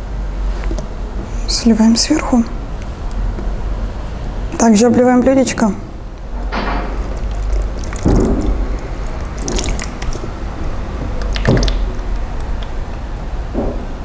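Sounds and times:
glaze pouring and splashing: 0:06.8 - 0:12.6.

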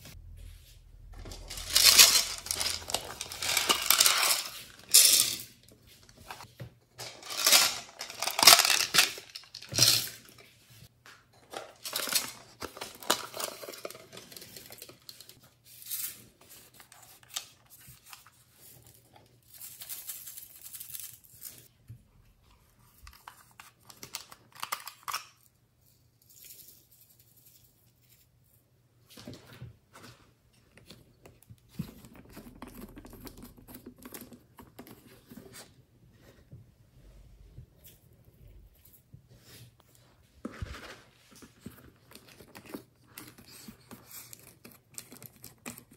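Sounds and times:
beads and glitter rattling: 0:01.3 - 0:05.5.

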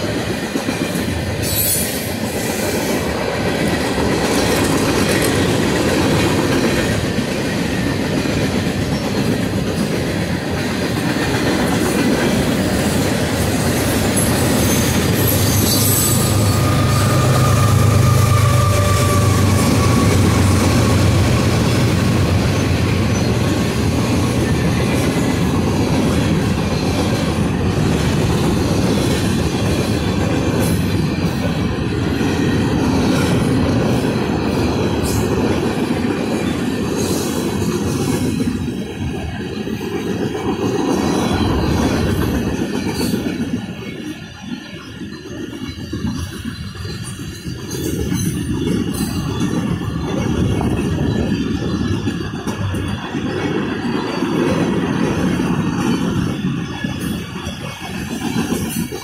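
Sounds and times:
train wheels clattering on rails: 0:00.0 - 0:59.0
high screech: 0:14.6 - 0:21.4.

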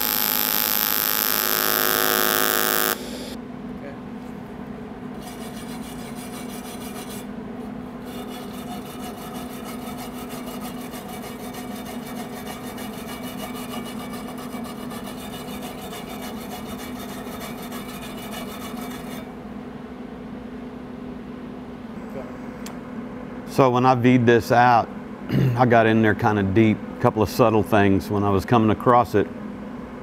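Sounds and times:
wire brush scrubbing metal: 0:05.2 - 0:07.3, 0:08.0 - 0:19.3.

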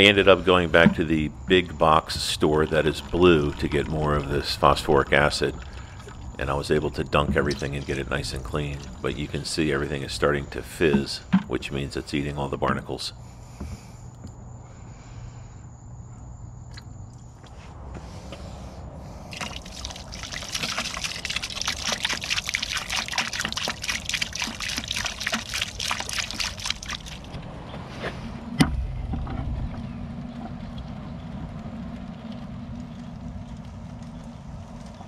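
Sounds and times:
faint acid fizzing: 0:00.0 - 0:13.0, 0:19.3 - 0:27.4
liquid pouring into plastic bucket: 0:02.3 - 0:09.2, 0:19.3 - 0:27.4.

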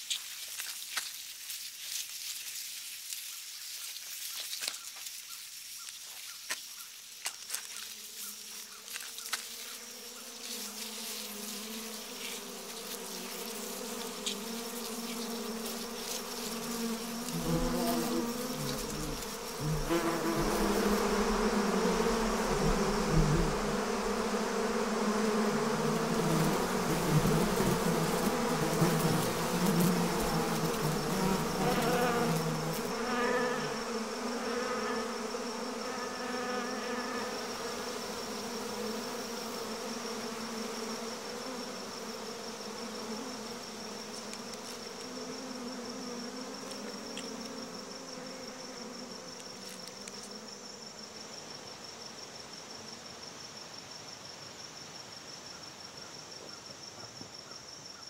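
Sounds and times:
high insect whine: 0:00.0 - 0:58.0
swarm of bees buzzing: 0:07.8 - 0:51.0.

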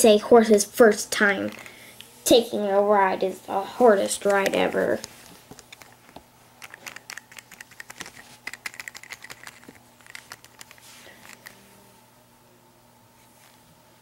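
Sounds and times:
plastic toys clicking together: 0:06.6 - 0:11.5.

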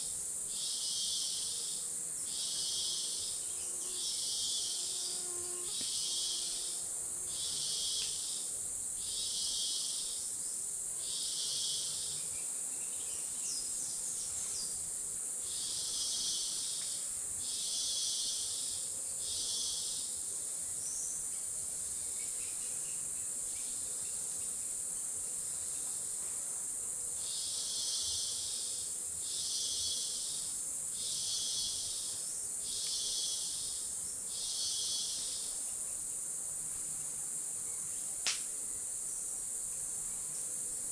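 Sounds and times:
pulsing insect call: 0:00.0 - 0:10.4, 0:15.4 - 0:20.2, 0:27.2 - 0:36.3
high-pitched insect hiss: 0:00.0 - 0:40.9.

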